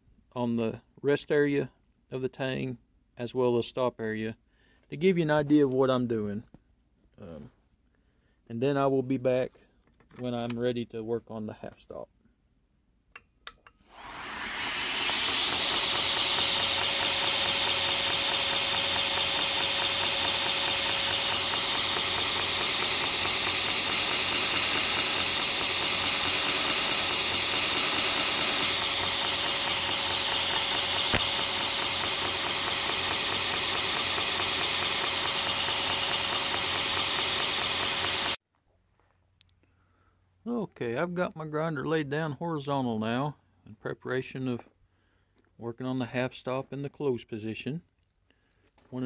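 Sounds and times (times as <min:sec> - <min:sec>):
belt grinder running: 0:13.9 - 0:38.4
belt hissing against steel: 0:14.4 - 0:38.4.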